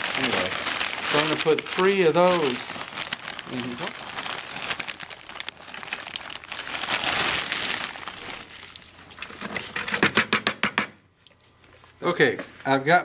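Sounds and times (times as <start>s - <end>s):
plastic bag crinkling: 0.0s - 9.9s.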